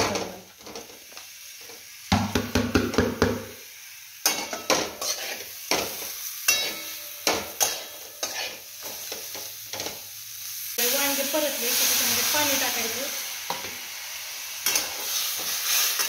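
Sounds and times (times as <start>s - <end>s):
faint frying sizzle: 0.0s - 16.0s
metal spatula knocking on pan: 2.1s - 3.5s
spatula scraping a plate: 4.3s - 5.5s, 7.6s - 8.6s.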